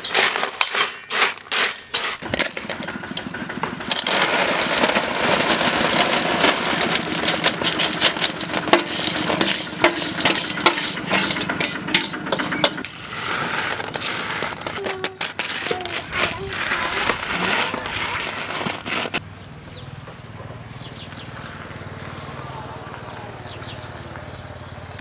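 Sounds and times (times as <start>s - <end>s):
snail shells clattering: 0.0s - 19.2s.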